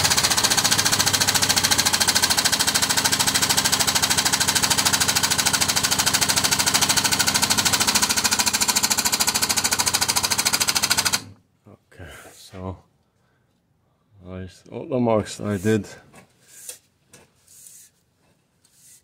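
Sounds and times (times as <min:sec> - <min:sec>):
power tool hammering: 0:00.0 - 0:11.4.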